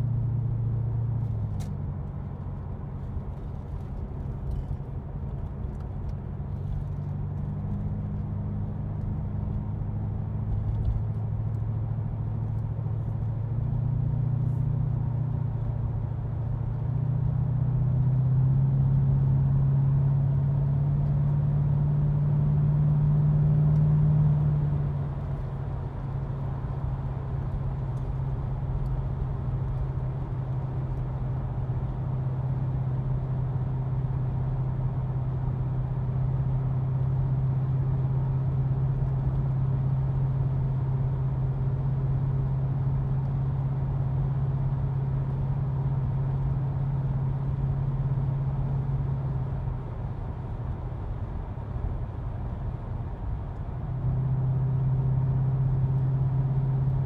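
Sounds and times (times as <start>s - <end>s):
car engine droning in cabin: 0.0s - 57.0s
road noise rumble: 0.0s - 57.0s.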